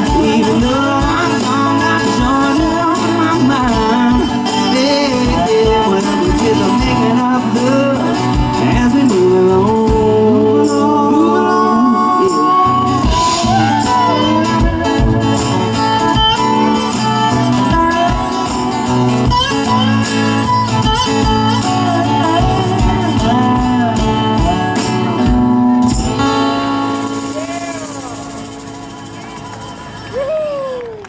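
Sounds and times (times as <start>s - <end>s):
lead guitar bending pitch: 0.0s - 30.2s
strummed acoustic guitar: 0.0s - 30.2s
drums keeping time: 0.0s - 30.7s.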